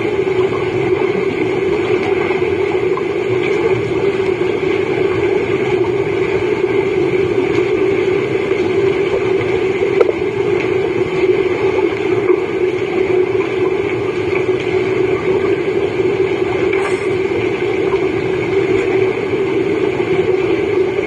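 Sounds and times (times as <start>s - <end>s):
underwater low hum: 0.0s - 21.0s
underwater water noise: 0.0s - 21.0s.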